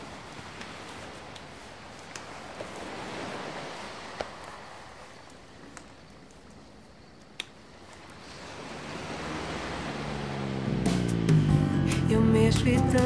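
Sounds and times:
water washing at shoreline: 0:00.0 - 0:12.6.

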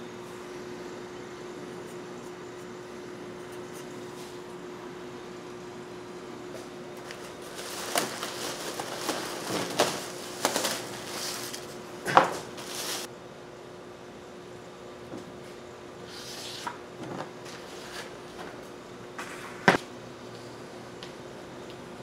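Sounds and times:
plastic wrapping crinkling: 0:07.0 - 0:11.8, 0:12.4 - 0:13.1.

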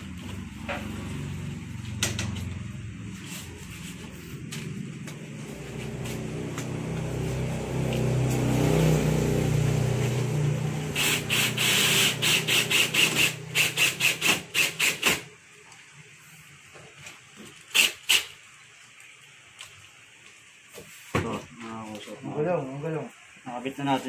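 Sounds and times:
cordless drill driving screw: 0:11.0 - 0:15.2.

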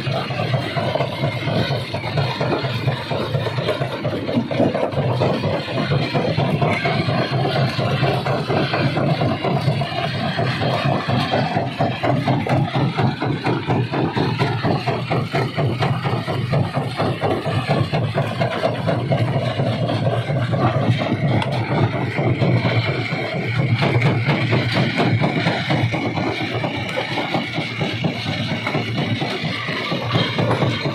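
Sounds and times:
engine hum: 0:00.0 - 0:30.9.

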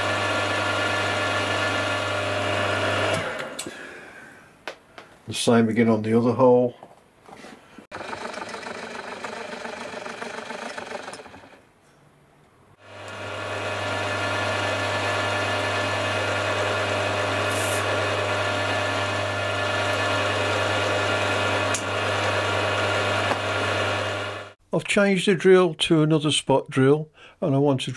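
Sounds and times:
steady motor hum: 0:07.9 - 0:11.6, 0:12.8 - 0:24.6.

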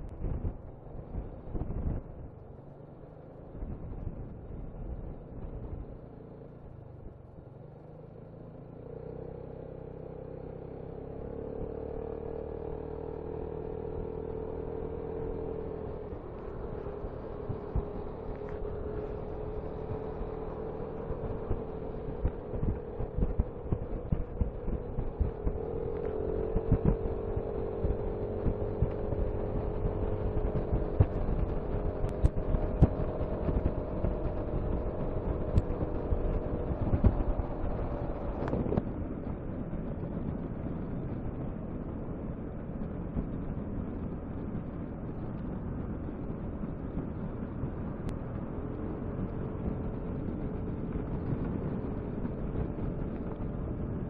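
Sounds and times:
wind noise on microphone: 0:00.0 - 0:02.5, 0:14.0 - 0:54.0.

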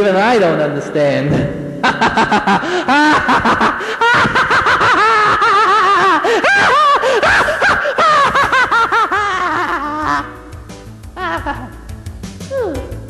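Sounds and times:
high-pitched puppet voice laughter: 0:01.8 - 0:10.4, 0:11.2 - 0:11.8.

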